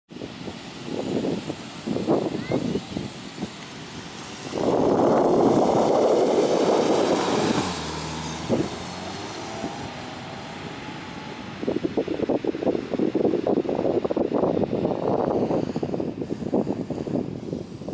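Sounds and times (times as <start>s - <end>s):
rushing noise gusts: 0.1s - 17.9s
car engine running: 3.7s - 12.4s.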